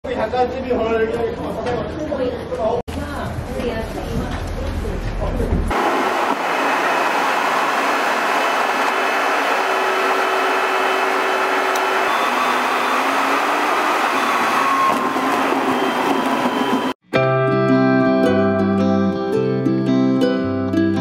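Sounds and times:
jet cabin engine and airflow rush: 0:05.7 - 0:17.0.

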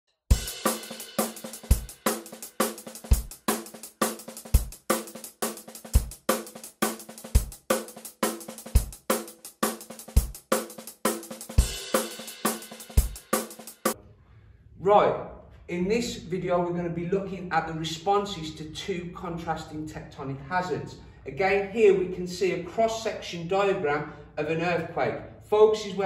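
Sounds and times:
drum kit beat with cymbals: 0:00.3 - 0:14.0.

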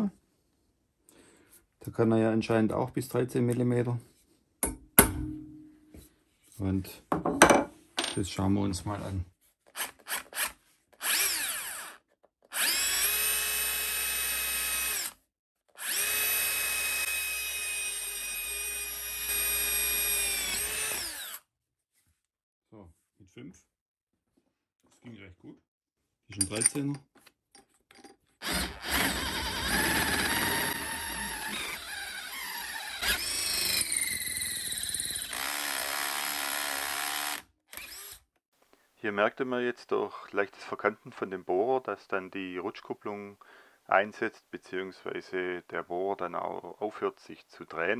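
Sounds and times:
rotary hammer motor whining: 0:11.0 - 0:15.2, 0:15.8 - 0:21.4, 0:28.4 - 0:38.2
drill bit squealing on metal: 0:28.4 - 0:35.4.

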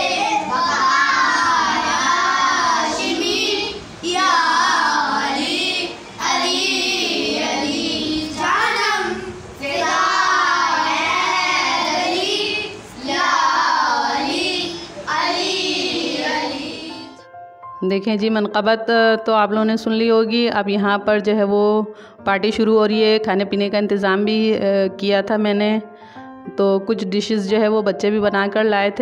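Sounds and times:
children singing together: 0:00.0 - 0:17.2.

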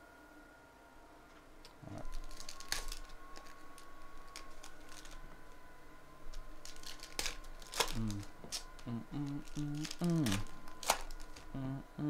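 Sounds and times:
card packs clicking and rustling: 0:02.0 - 0:05.6, 0:06.3 - 0:11.6.

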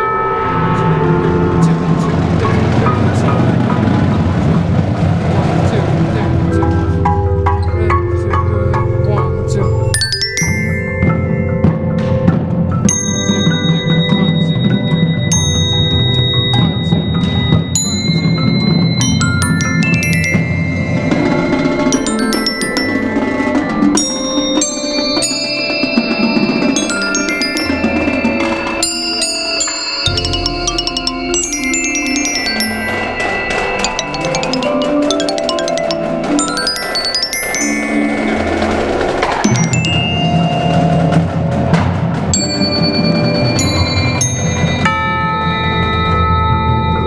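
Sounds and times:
percussion ensemble: 0:00.0 - 0:47.0
glockenspiel notes: 0:06.4 - 0:47.0
ringing mallet strikes on chimes: 0:09.0 - 0:38.8, 0:39.4 - 0:41.3.

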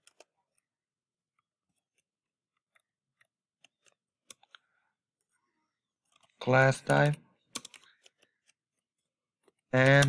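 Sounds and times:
computer keyboard keystrokes: 0:06.2 - 0:08.3.

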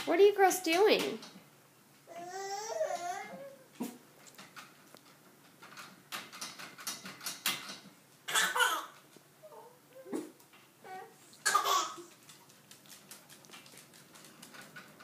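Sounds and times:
metal baby gate rattling: 0:04.4 - 0:07.9.

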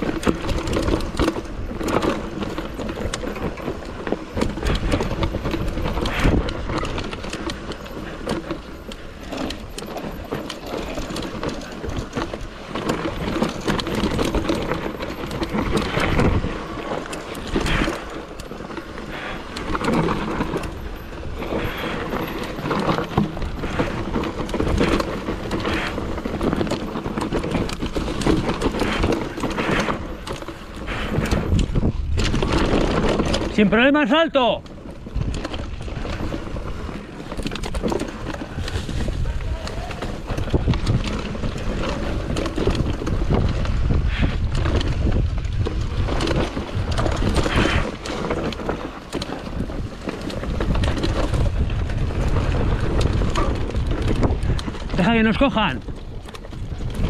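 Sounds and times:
bike rattling and knocking: 0:00.0 - 0:57.0.

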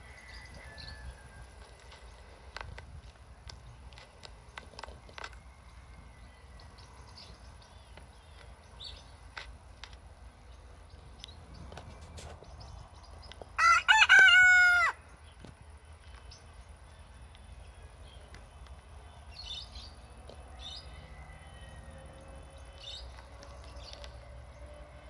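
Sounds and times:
rooster crowing: 0:00.0 - 0:01.7, 0:13.6 - 0:15.0, 0:21.0 - 0:22.1.

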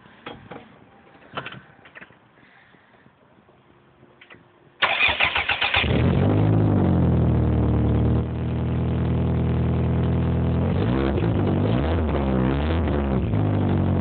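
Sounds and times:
car engine cranking and idling: 0:04.8 - 0:14.0.

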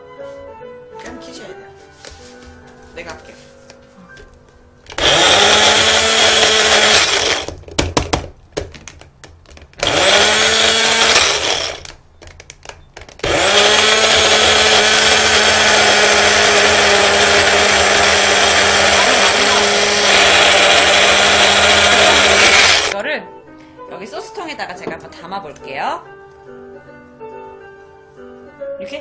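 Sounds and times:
blender whirring: 0:04.9 - 0:07.6, 0:09.8 - 0:12.0, 0:13.2 - 0:23.0.

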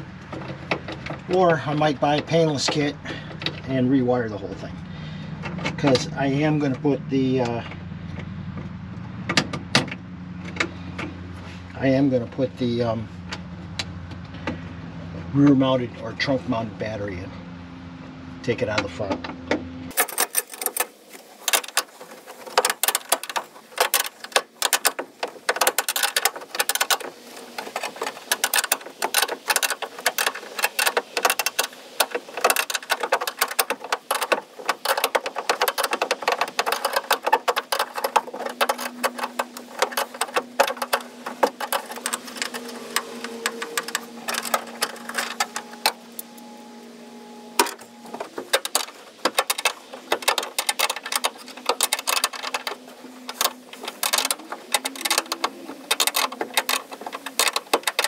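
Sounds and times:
metallic clicking of hand tools: 0:19.9 - 0:46.3, 0:47.6 - 0:58.0.

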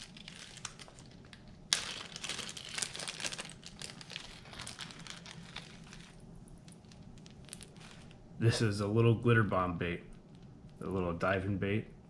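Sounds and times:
crinkly packaging rustling: 0:00.0 - 0:08.2.

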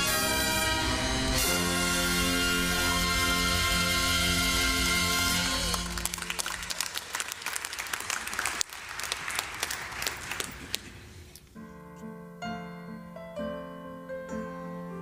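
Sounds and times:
brass ensemble chord: 0:00.0 - 0:06.4
piano playing: 0:00.0 - 0:06.7, 0:11.5 - 0:15.0
audience applauding: 0:05.3 - 0:11.1.

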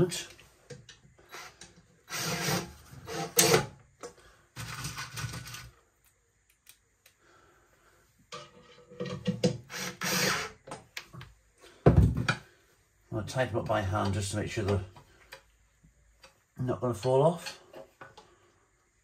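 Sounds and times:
drill driving screws: 0:01.3 - 0:03.7, 0:09.4 - 0:10.6.

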